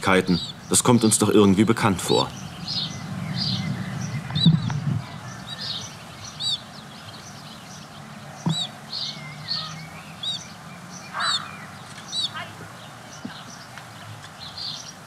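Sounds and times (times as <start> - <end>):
steady low hum: 0.0 - 7.4
sparrows chirping: 0.0 - 15.0
low rumble: 2.3 - 5.8.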